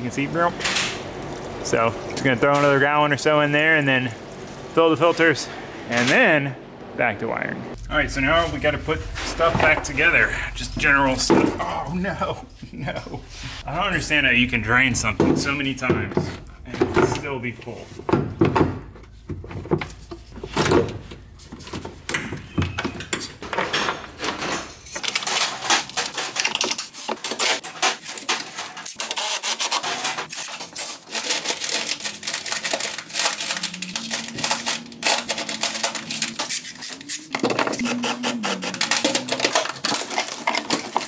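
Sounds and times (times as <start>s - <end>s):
hand tools clicking and clattering: 15.0s - 41.0s.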